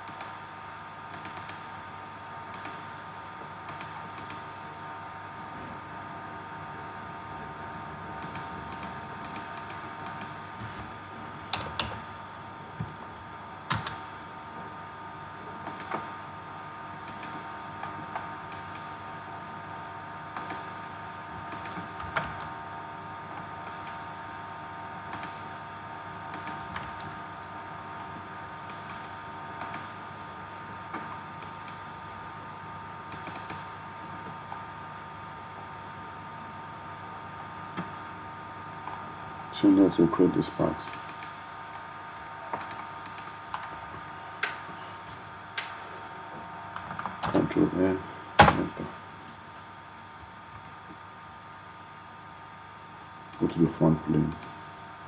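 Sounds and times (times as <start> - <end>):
computer mouse clicks: 0.0 - 0.4, 1.1 - 1.6, 2.5 - 2.8, 3.7 - 4.4, 8.2 - 10.4, 15.6 - 16.0, 17.0 - 17.4, 18.5 - 18.9, 20.4 - 20.6, 21.5 - 21.9, 23.4 - 24.0, 25.1 - 25.4, 26.3 - 26.6, 28.7 - 29.9, 31.4 - 31.8, 33.1 - 33.7, 40.8 - 41.4, 42.5 - 43.4, 53.3 - 53.7, 54.3 - 54.6
keyboard clicks: 0.0 - 0.4, 1.1 - 1.6, 2.5 - 2.8, 3.7 - 4.4, 8.2 - 10.4, 15.6 - 16.0, 17.1 - 17.4, 20.4 - 20.6, 21.5 - 21.8, 25.1 - 25.4, 26.3 - 26.6, 28.7 - 29.9, 33.1 - 33.6, 42.6 - 43.3
steady background hum: 0.0 - 55.0.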